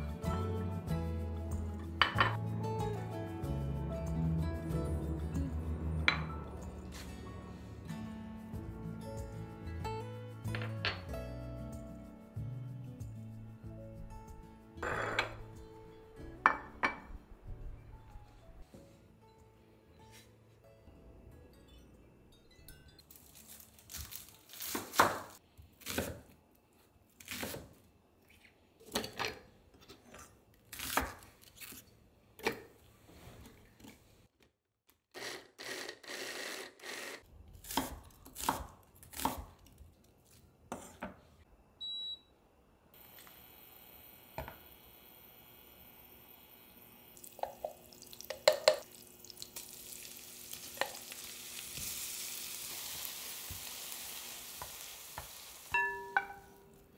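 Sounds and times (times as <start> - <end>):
blender chopping bursts: 35.2 - 37.2
faint electric hum: 41.5 - 55.7.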